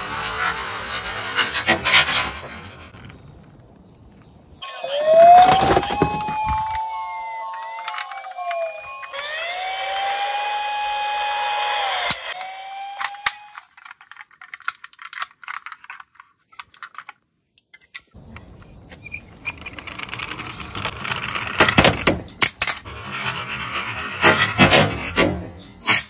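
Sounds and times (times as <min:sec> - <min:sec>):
toy van rolling on wood: 0:00.0 - 0:26.0
police siren wail: 0:04.6 - 0:13.6.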